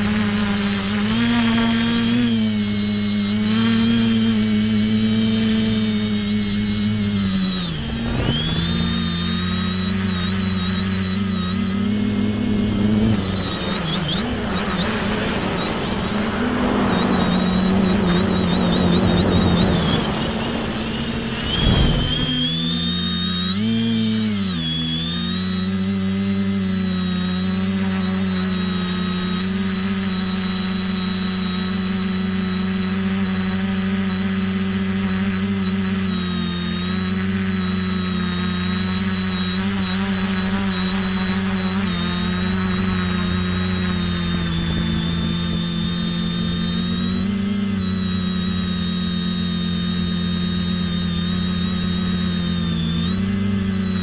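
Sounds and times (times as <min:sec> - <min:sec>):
drone propellers buzzing: 0:00.0 - 0:54.0.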